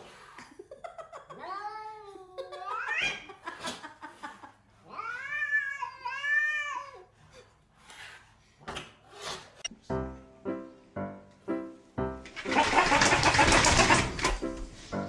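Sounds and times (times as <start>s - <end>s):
cat meowing and yowling: 4.9s - 7.1s.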